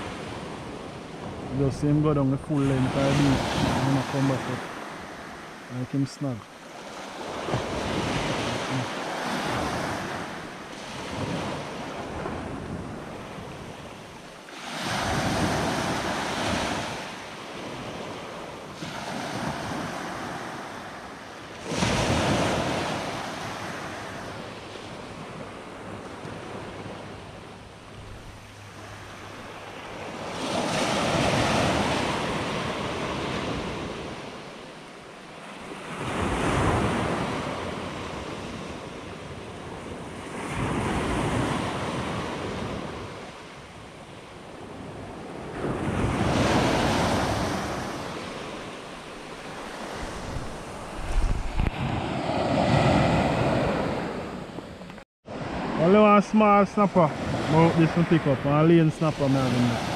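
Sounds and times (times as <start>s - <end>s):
surf breaking on a beach: 0.0s - 59.9s
wind on microphone: 44.7s - 55.5s.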